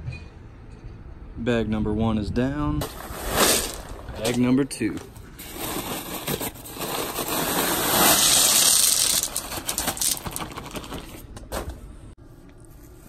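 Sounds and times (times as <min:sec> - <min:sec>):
stones clattering onto pebbles: 0:05.5 - 0:11.2.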